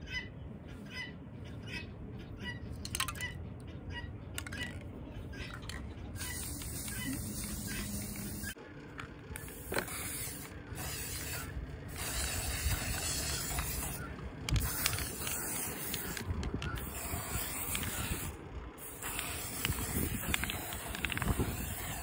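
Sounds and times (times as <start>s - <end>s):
spray paint can hissing: 5.6s - 8.6s, 9.4s - 22.0s.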